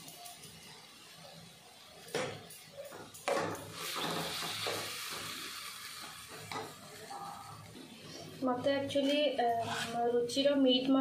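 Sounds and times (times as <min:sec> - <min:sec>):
light sizzle: 0:00.0 - 0:11.0
spatula scraping and stirring: 0:03.8 - 0:10.3.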